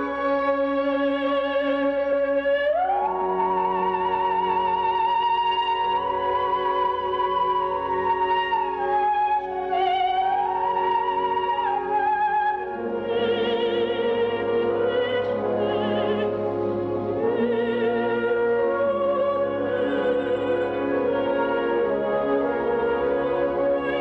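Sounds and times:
operatic soprano singing: 0.0 - 24.0
orchestra playing: 0.0 - 24.0.

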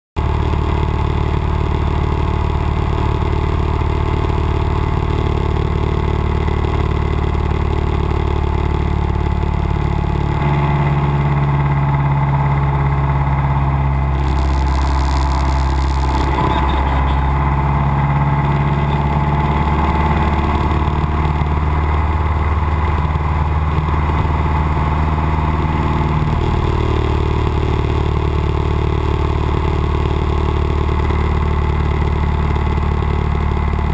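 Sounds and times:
propeller plane engine droning: 9.1 - 33.9.

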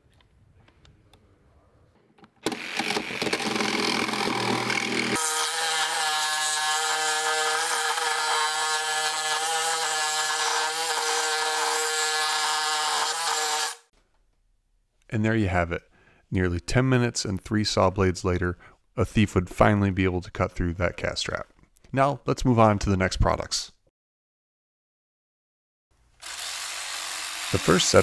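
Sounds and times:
reciprocating saw cutting metal: 2.5 - 13.9, 26.2 - 28.0.

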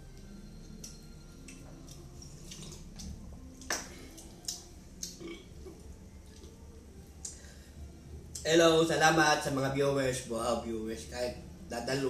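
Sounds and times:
lip smacks and chewing: 0.8 - 5.4.

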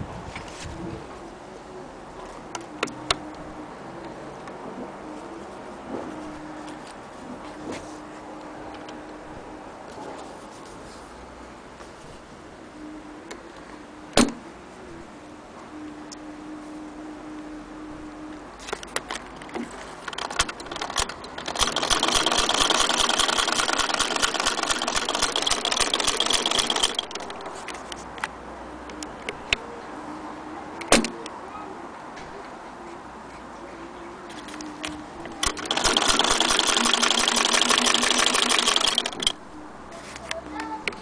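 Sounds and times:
hand-crank sewing machine clatter: 20.0 - 27.4, 35.4 - 39.4.

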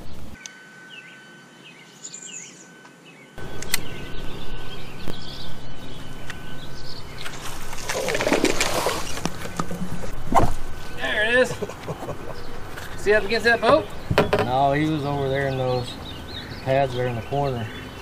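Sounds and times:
birds chirping faintly: 0.0 - 18.0
fish splashing in water: 7.2 - 9.8.

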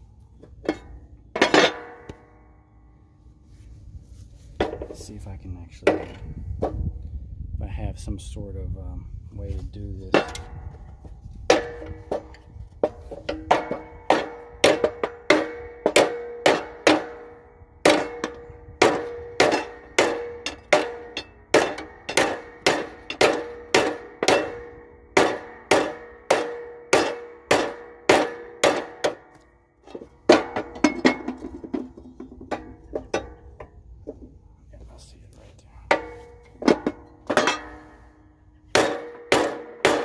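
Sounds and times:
metal deck ringing: 0.4 - 3.0, 4.6 - 7.0, 10.0 - 34.4, 35.9 - 40.0
hammer beating on steel deck: 11.5 - 31.6, 35.9 - 40.0.

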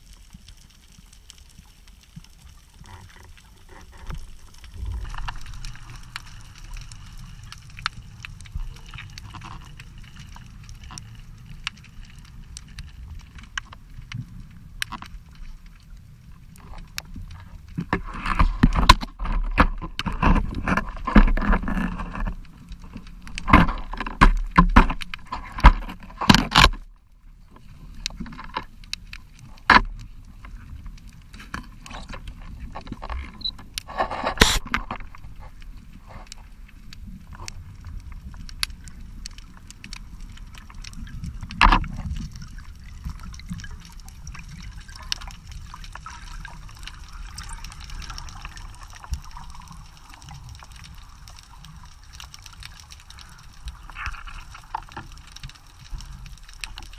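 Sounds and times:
muffled underwater knocks and clicks: 2.1 - 15.6, 16.6 - 26.9, 27.6 - 51.1
bubbles fizzing: 2.3 - 18.7, 37.6 - 56.9.

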